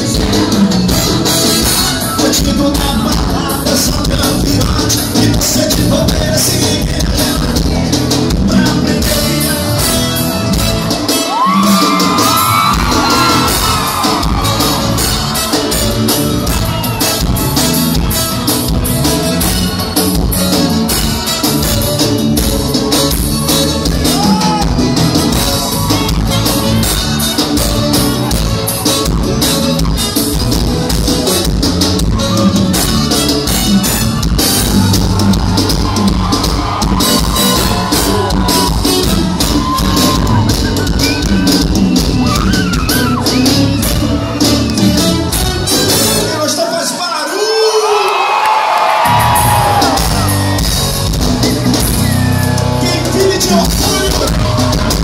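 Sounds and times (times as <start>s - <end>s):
person singing: 0.0s - 10.3s
live band playing: 0.0s - 55.0s
crowd shouting along: 11.1s - 17.9s, 24.0s - 27.2s, 34.4s - 44.5s, 46.4s - 51.1s.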